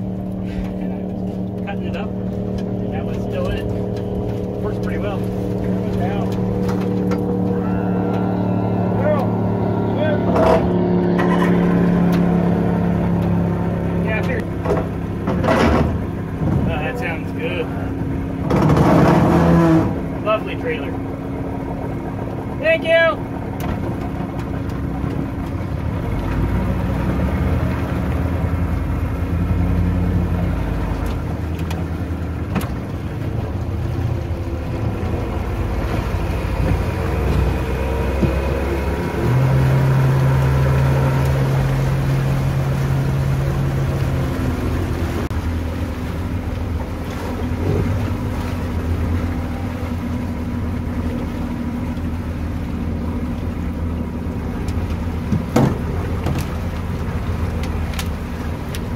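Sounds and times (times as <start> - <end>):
loud steady hum: 0.0 - 23.2
outboard motor running: 0.0 - 58.9
water rushing along hull: 0.0 - 58.9.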